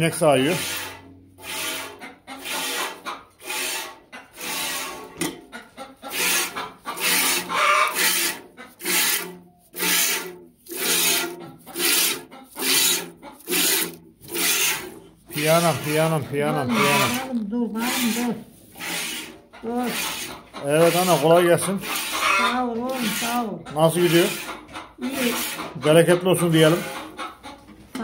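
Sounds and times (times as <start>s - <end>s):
milk squirting into metal pail: 6.1s - 16.1s.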